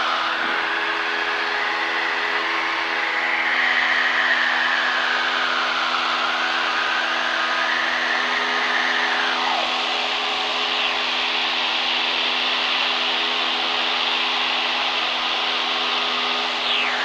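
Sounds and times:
faint whistle gliding down: 0:13.6 - 0:17.0.

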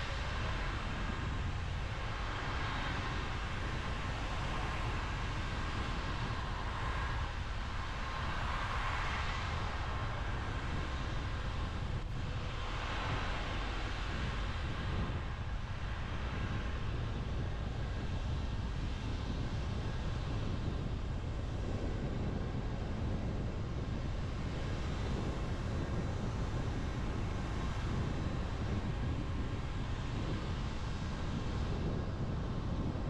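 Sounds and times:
tyres hissing on wet road: 0:07.8 - 0:11.1.

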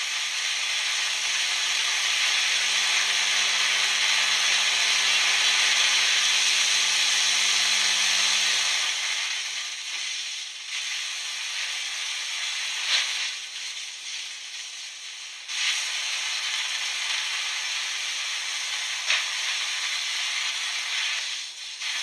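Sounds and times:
electric arc hissing: 0:00.0 - 0:22.0
sharp snap: 0:19.0 - 0:19.4.

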